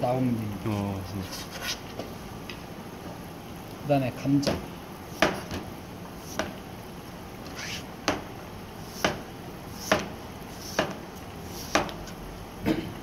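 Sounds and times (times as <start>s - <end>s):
knife scrape: 1.2s - 1.9s, 7.5s - 7.9s, 8.8s - 12.2s
knife knocking on cutting board: 5.2s - 5.6s, 9.8s - 11.0s
knife slicing potato: 7.5s - 12.2s.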